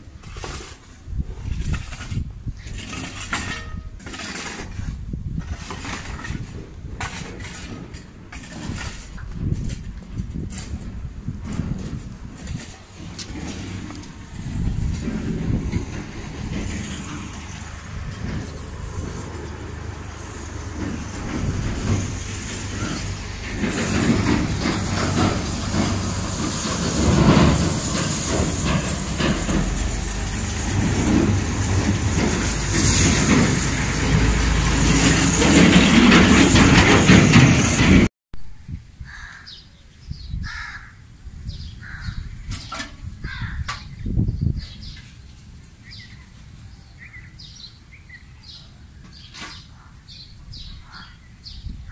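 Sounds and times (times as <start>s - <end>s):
rough rumbling and rushing noise: 0.0s - 39.2s
crows calling: 39.0s - 39.7s, 40.4s - 41.0s, 41.8s - 42.3s, 43.2s - 43.9s, 50.7s - 51.3s.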